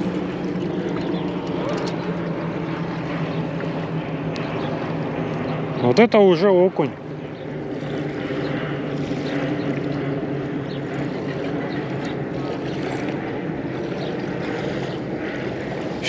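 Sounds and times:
engine droning: 0.0s - 16.0s.

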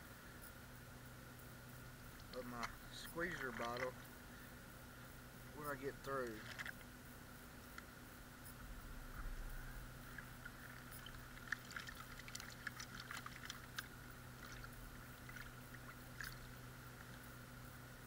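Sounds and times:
small water splashes: 2.2s - 4.1s, 6.2s - 6.8s, 10.0s - 17.3s
water sloshing and dripping: 2.2s - 4.1s, 6.2s - 6.8s, 9.2s - 17.3s.

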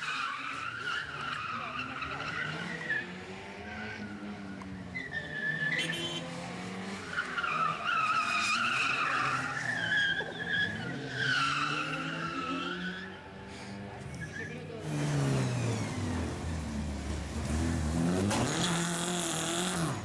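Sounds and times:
car engine revving hard: 14.8s - 20.0s.

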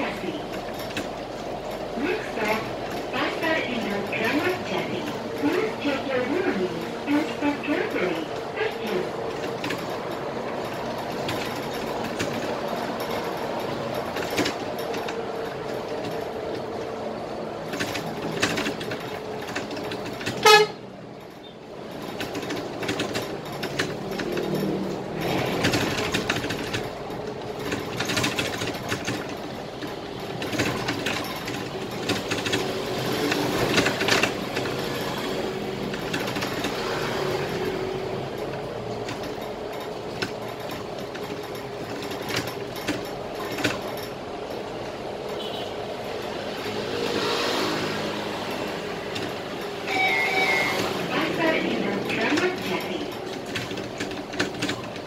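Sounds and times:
bus engine running: 0.0s - 55.0s
rattles: 0.0s - 55.0s
bus horn toot: 20.3s - 20.9s, 45.4s - 45.8s, 49.8s - 51.1s.

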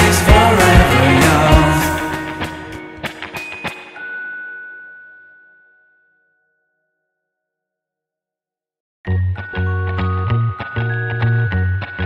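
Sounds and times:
instrumental music with deep bass: 0.0s - 3.9s, 9.1s - 12.0s.

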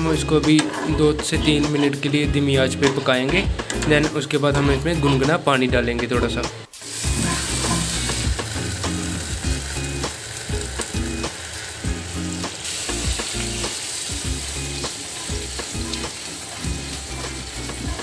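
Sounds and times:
gravy sizzling in a frying pan: 6.7s - 18.0s
water pouring: 6.7s - 18.0s.

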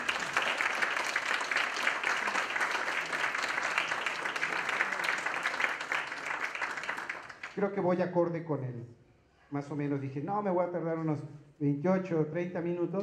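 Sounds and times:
audience clapping: 0.0s - 7.7s.

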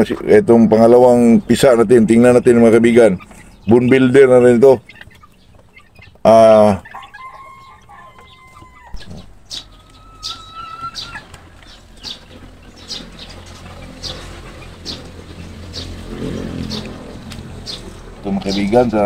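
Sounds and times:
chicks peeping: 0.0s - 19.0s
roosters crowing: 3.0s - 19.0s
chicken call: 6.4s - 11.4s.

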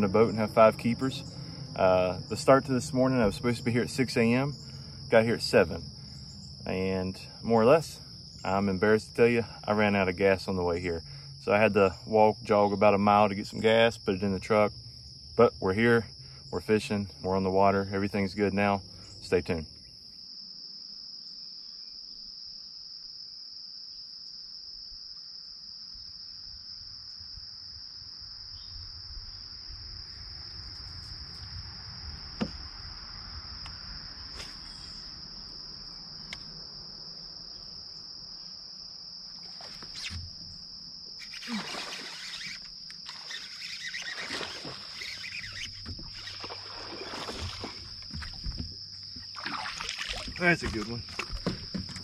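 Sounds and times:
insects droning: 0.0s - 52.0s
fish splashing in water: 41.2s - 52.0s.

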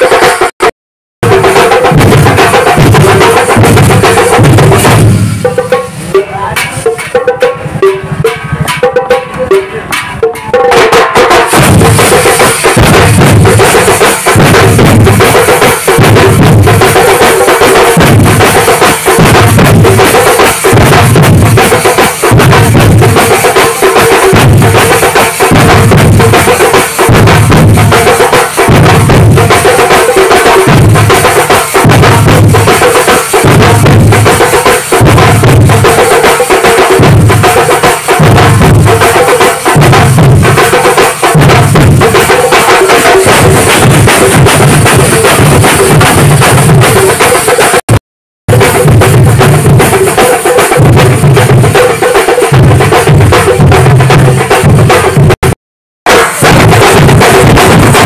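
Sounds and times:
drum-heavy procession music: 0.0s - 58.0s.

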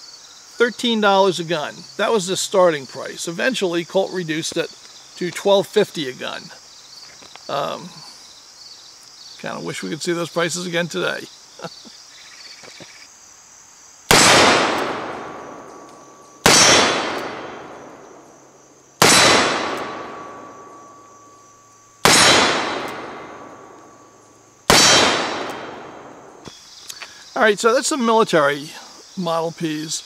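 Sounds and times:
revolver shots echoing: 14.1s - 18.2s, 19.0s - 21.4s, 22.0s - 23.9s, 24.7s - 26.4s
steel targets ringing: 19.0s - 24.1s.

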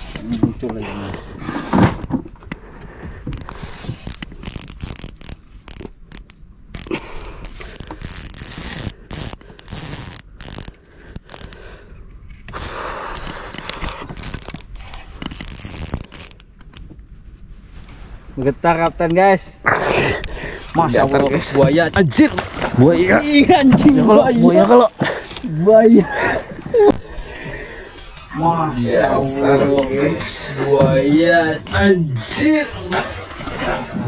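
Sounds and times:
fishing reel drag buzzing: 3.3s - 11.6s, 12.5s - 13.3s, 14.1s - 16.8s, 21.0s - 21.5s, 23.7s - 26.8s, 29.0s - 30.1s.

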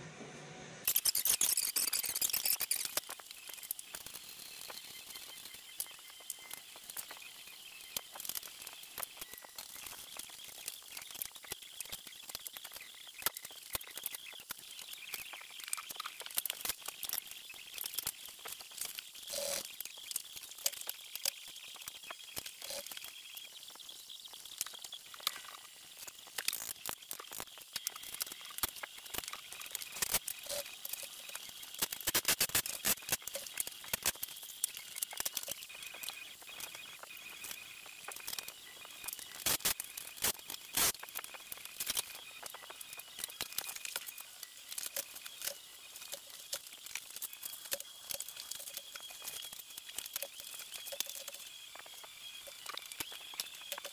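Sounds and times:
hand tools clicking and rattling: 0.8s - 4.2s.

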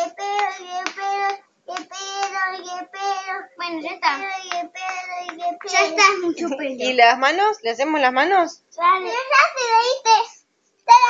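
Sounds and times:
child singing: 0.0s - 6.6s, 8.8s - 11.0s.

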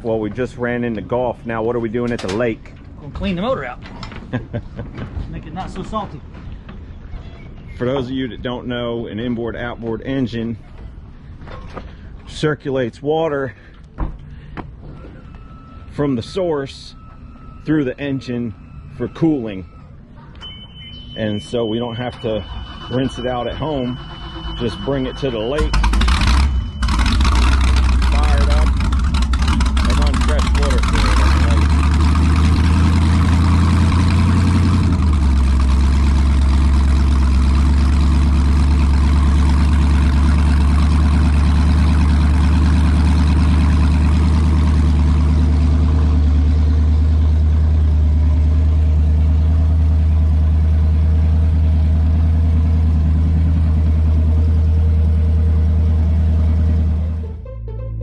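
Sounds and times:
boat engine idling: 13.5s - 57.3s.

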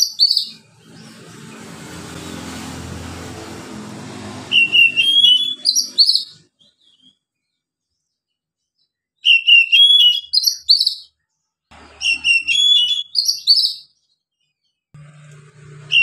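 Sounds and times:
bird singing whistled phrase: 4.5s - 7.0s, 9.2s - 11.1s, 12.0s - 14.0s.

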